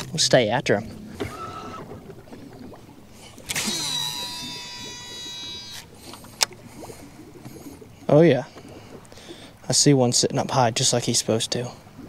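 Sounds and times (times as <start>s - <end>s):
fishing reel spool whine: 1.2s - 2.0s, 3.3s - 6.6s.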